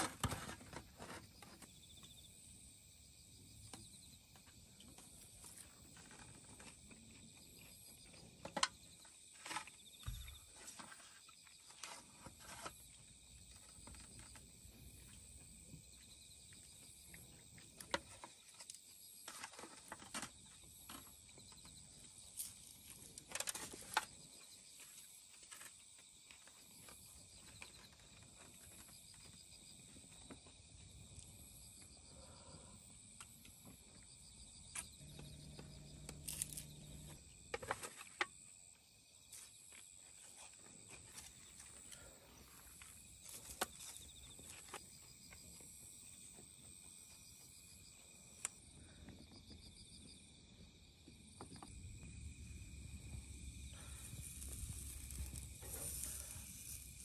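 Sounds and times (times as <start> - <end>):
night insects chirping: 0.0 - 57.0
aluminium foil tray rustling: 53.8 - 57.0.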